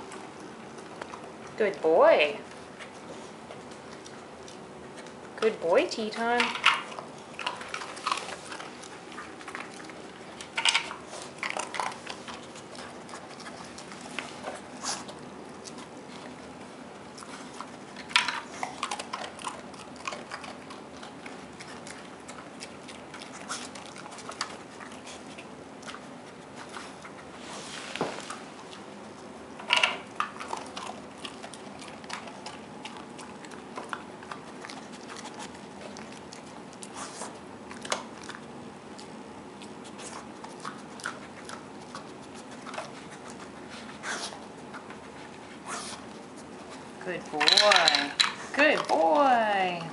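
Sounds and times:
dog chewing treats: 0.0 - 49.9.

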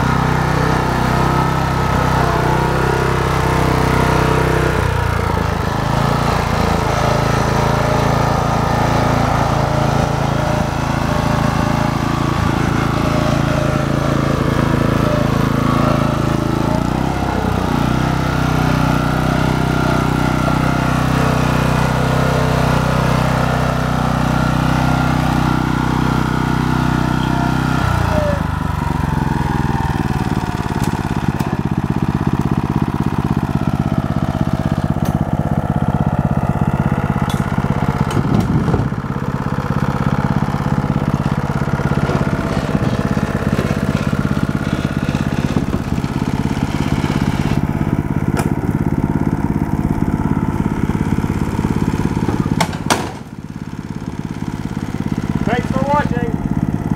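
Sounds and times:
small tractor engine running: 0.0 - 56.9
firewood knocking: 52.3 - 53.3.

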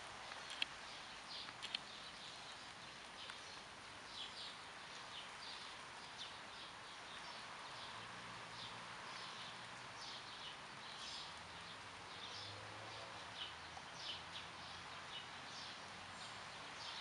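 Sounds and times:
even background hiss: 0.0 - 17.0
small birds chirping: 0.0 - 17.0
sharp clicks: 0.3 - 0.8, 1.4 - 1.9.

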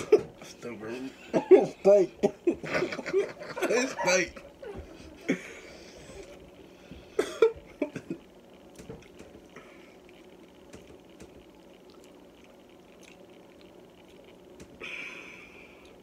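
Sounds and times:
person coughing: 7.1 - 8.2.

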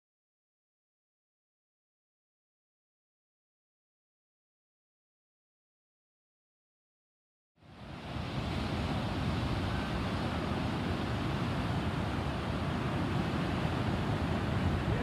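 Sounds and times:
ocean surf breaking: 7.6 - 15.0
wind on microphone: 7.8 - 15.0.

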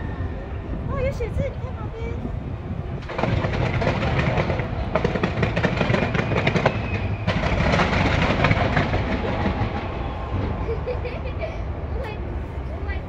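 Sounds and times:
low rumble: 0.0 - 13.0
fireworks cracking and popping: 3.0 - 10.6.

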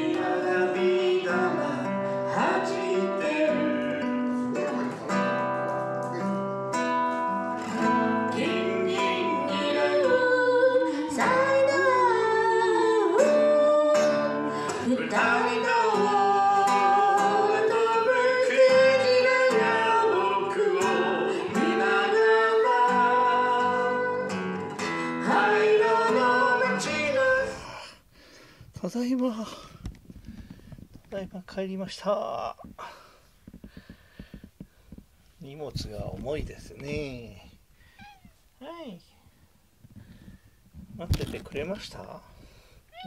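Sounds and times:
man singing: 0.0 - 6.4, 7.8 - 24.4, 25.0 - 28.0
acoustic guitar strumming: 0.0 - 28.6.

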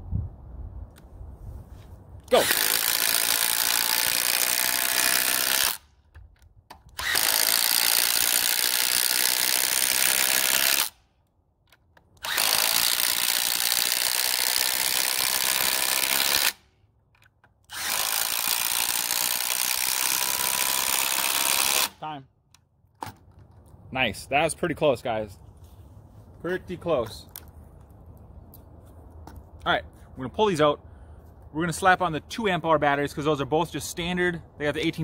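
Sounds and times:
impact driver hammering screws: 2.4 - 11.0, 11.7 - 16.6, 17.2 - 22.0.

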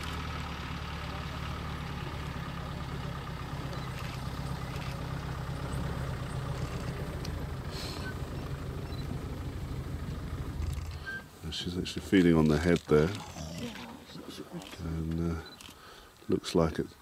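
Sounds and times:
vehicle engine idling: 0.0 - 16.0.

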